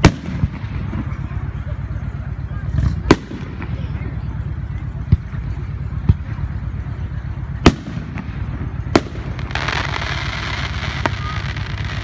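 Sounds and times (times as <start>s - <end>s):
low rumble: 0.0s - 12.0s
crackling hiss: 4.4s - 12.0s.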